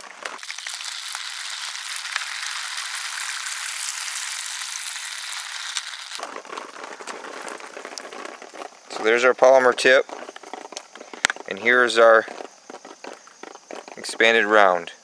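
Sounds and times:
water pouring and splashing: 0.0 - 8.7.

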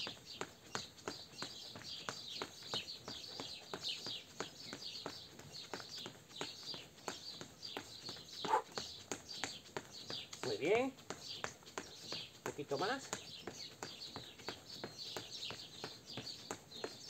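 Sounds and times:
birds chirping: 0.0 - 17.0
running footsteps on stone: 0.0 - 17.0.

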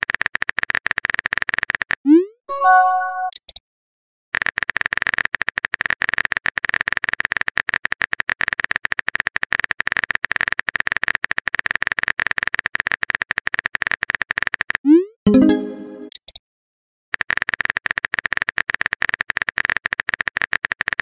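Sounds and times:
short pitched chime: 2.5 - 3.3.

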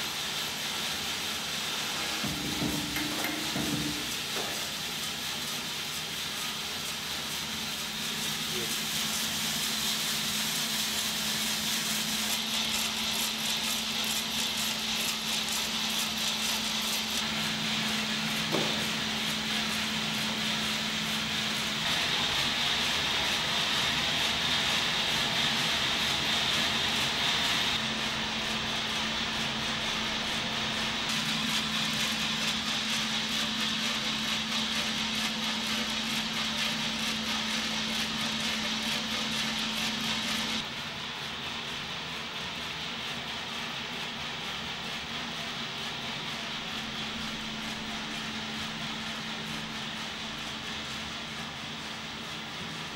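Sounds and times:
coffee roaster humming: 0.0 - 52.9
short knock: 2.2 - 4.6.

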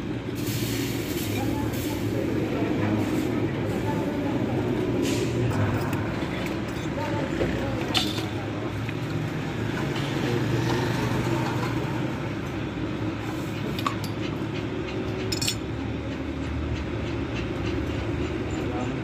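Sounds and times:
vehicle rumble: 0.0 - 19.0
hand tools clinking on metal: 15.2 - 15.7.

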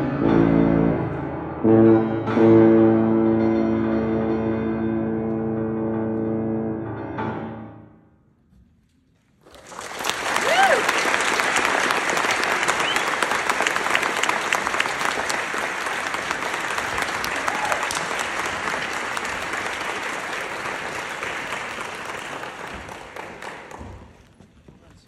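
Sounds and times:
audience applauding: 9.4 - 24.4.

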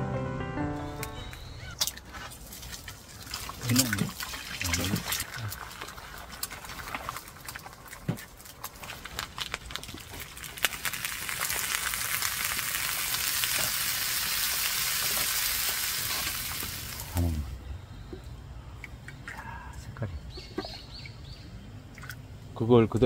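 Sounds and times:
food frying in hot oil: 3.2 - 17.3.

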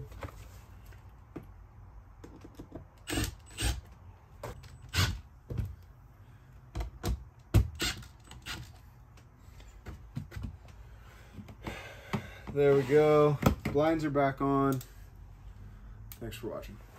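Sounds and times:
cordless drill driving screws: 3.0 - 3.8, 4.9 - 5.2.

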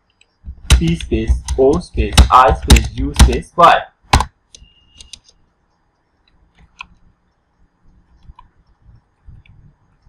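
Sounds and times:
keyboard keys clicking: 0.2 - 3.4.

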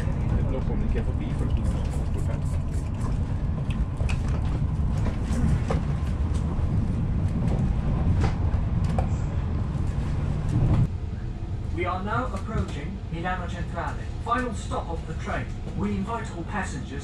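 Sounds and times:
train low rumble: 0.0 - 17.0.

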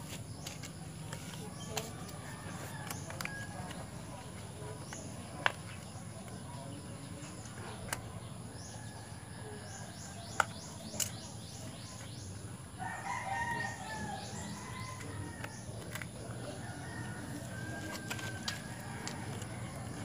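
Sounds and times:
small birds chirping: 0.0 - 20.0
rooster crowing: 12.8 - 15.5.

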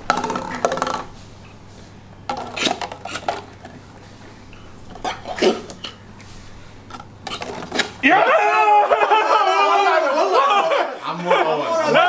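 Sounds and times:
plastic cups clattering on table: 0.0 - 1.2, 2.2 - 4.2, 4.8 - 6.0, 6.8 - 8.0.

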